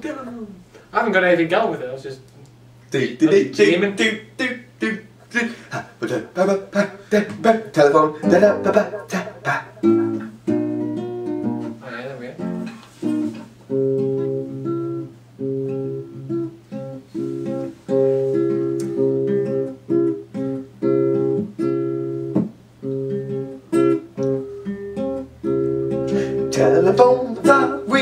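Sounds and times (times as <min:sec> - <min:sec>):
acoustic guitar strumming chords: 0:03.0 - 0:28.0.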